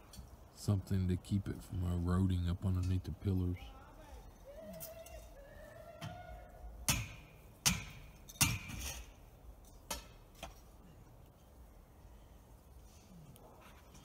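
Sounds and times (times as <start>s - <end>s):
hammer striking metal: 6.9s - 9.0s.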